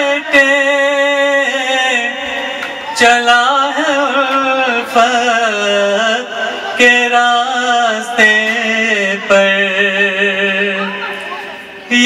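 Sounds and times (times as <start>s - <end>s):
man chanting: 0.0s - 11.1s, 11.8s - 12.0s.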